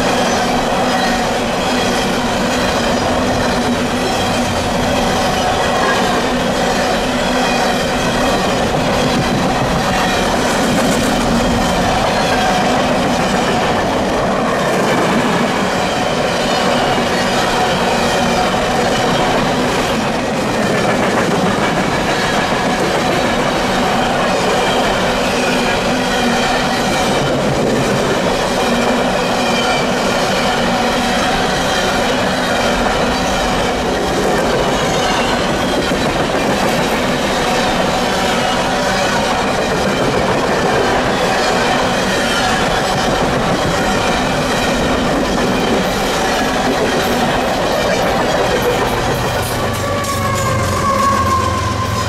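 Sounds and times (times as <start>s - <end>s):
rhythmic clickety-clack: 0.0s - 52.0s
train wheels rumbling on rail: 0.0s - 52.0s
high wheel squeal: 43.6s - 52.0s.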